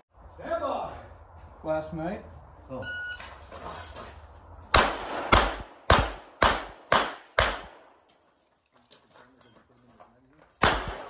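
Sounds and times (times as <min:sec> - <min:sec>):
pistol shots with echo: 0:04.7 - 0:08.0, 0:10.6 - 0:11.0.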